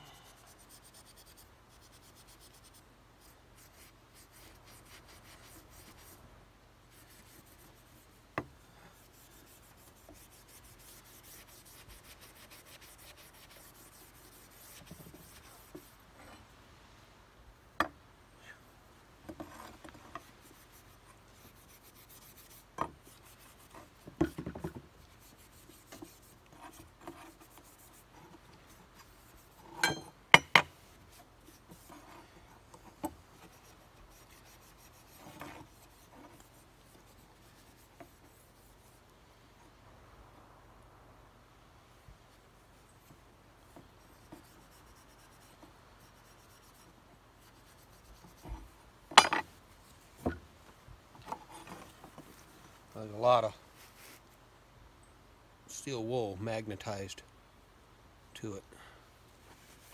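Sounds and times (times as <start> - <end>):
steel wool scrubbing metal: 9.0 - 16.4.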